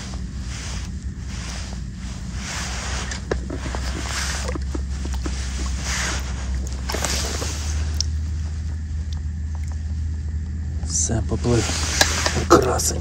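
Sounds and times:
water swishing and splashing: 0.0 - 10.2
steady low rumble: 0.0 - 13.0.

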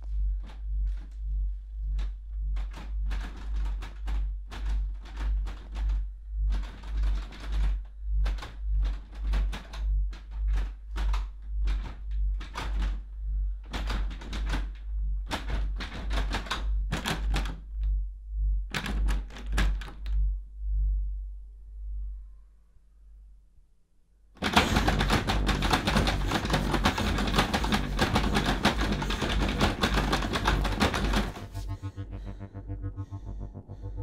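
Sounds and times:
low pulsing throb: 0.0 - 13.7, 14.8 - 15.3, 17.6 - 19.1, 20.0 - 22.7, 24.7 - 34.0
rapid knocking at a door: 1.9 - 17.7, 24.4 - 31.7.

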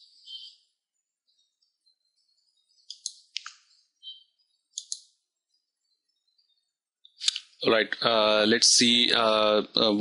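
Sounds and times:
faint bird chirps: 0.0 - 7.2.

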